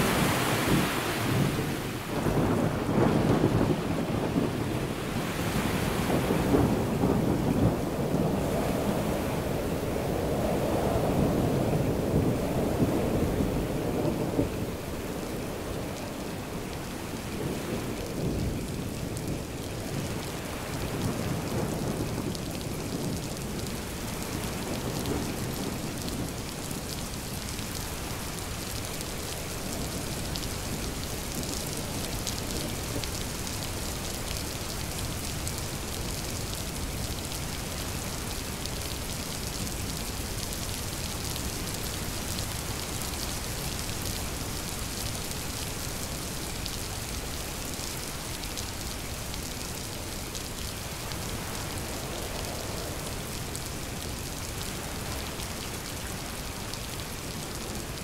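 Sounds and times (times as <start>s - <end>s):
steady rain falling: 0.0s - 58.0s
rolling thunder: 0.1s - 27.5s.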